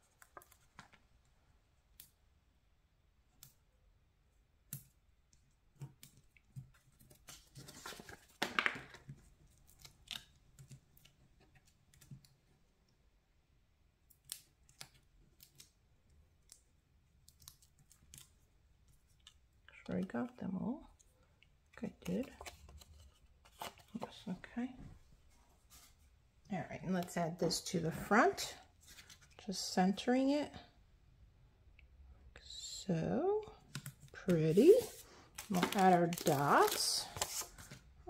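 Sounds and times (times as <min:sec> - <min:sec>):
paper rustling: 0:06.6 - 0:12.3, 0:22.2 - 0:24.3, 0:34.3 - 0:37.9.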